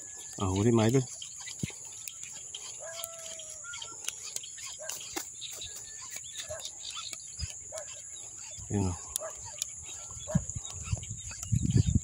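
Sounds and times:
high-pitched insect drone: 0.0 - 12.0
distant animal call: 1.4 - 11.0.

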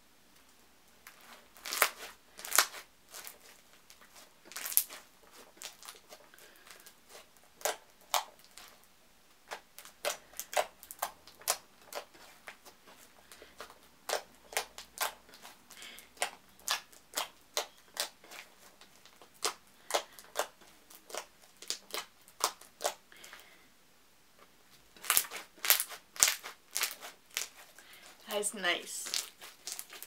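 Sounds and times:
slime clicking and popping: 9.5 - 12.1, 16.2 - 23.0, 25.0 - 27.5, 29.1 - 30.0.

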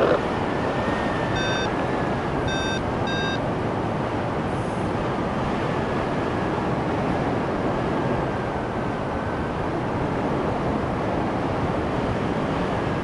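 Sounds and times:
wind rushing over microphone: 0.0 - 13.0
short electronic beeps: 1.3 - 1.8, 2.4 - 3.4.

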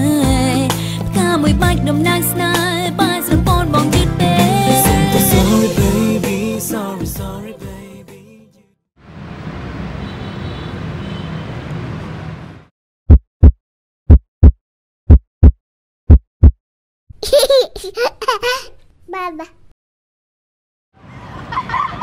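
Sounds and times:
heartbeat thumps: 13.1 - 16.6.

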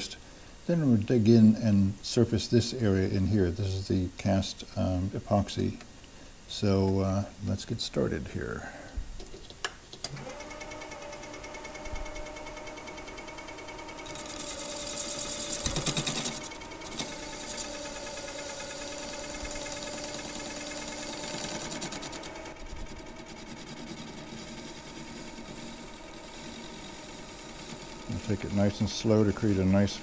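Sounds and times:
lathe humming: 10.1 - 30.0
high cutting noise: 13.9 - 30.0.

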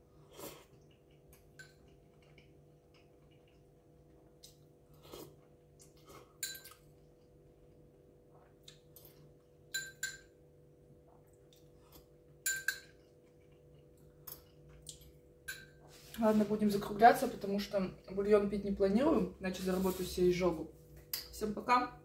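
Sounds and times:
fork clinking on ceramic bowl: 9.7 - 10.3, 12.4 - 13.0.

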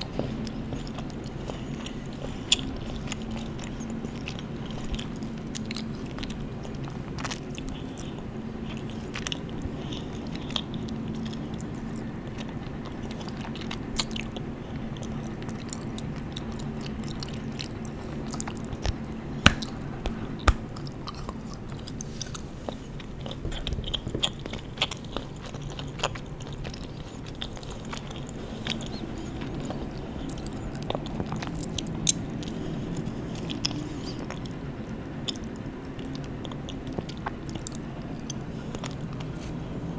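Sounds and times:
chocolate chewing mouth sounds: 0.0 - 39.9
steady low hum: 0.0 - 39.9
chocolate snapping: 15.0 - 28.9.

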